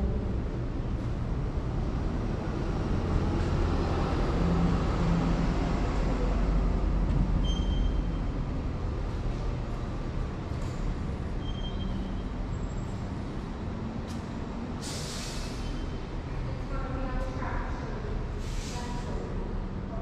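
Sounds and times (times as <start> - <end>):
heavy vehicle rumbling past: 0.0 - 19.9
faint high squeal: 7.4 - 8.2, 11.4 - 12.4.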